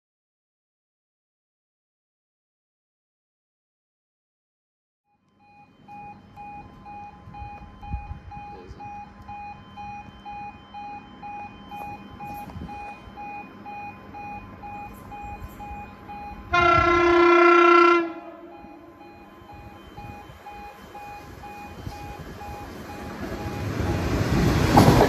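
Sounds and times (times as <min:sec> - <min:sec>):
warning alarm beeping: 0:05.1 - 0:25.0
train horn blast: 0:16.5 - 0:19.0.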